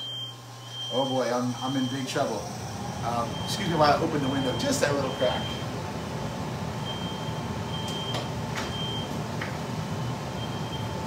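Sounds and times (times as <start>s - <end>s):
smoke alarm beeping: 0.0s - 5.7s, 6.8s - 9.2s, 10.0s - 11.0s
steady low rumble: 2.3s - 11.0s.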